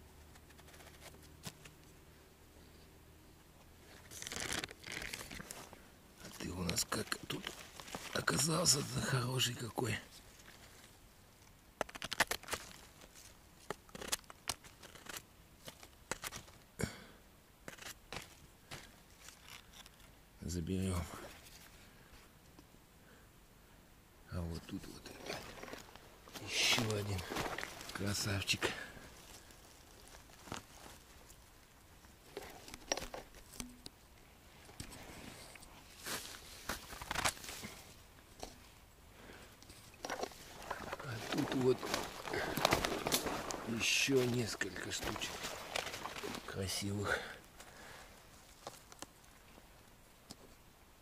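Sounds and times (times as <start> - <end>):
twigs snapping: 0.3 - 1.9, 4.0 - 8.5, 10.3 - 16.7, 17.6 - 20.2, 25.0 - 31.5, 36.0 - 37.8, 39.6 - 46.6, 47.4 - 49.3
forest litter crackling and rustling: 3.8 - 16.7, 17.6 - 20.2, 24.4 - 33.6, 34.5 - 49.9.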